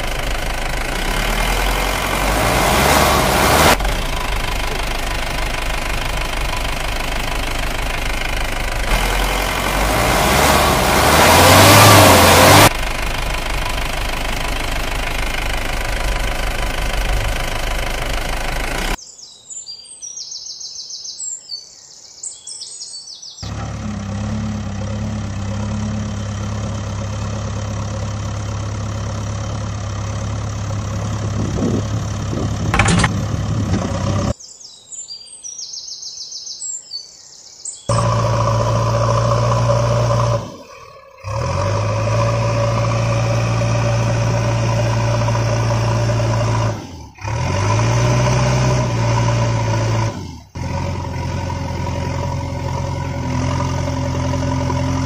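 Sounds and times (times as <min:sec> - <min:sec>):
engine running: 0:00.0 - 0:19.0, 0:23.4 - 0:34.4, 0:37.9 - 0:55.0
birds chirping: 0:13.4 - 0:42.1.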